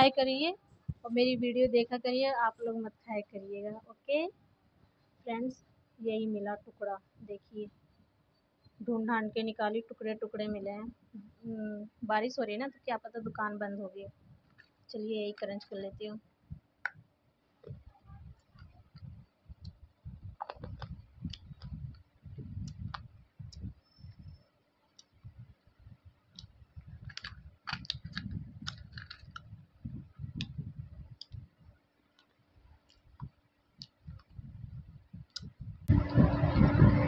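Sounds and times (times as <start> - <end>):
crunching chewing: 26.4 - 29.6
loud rush of noise: 35.9 - 37.0.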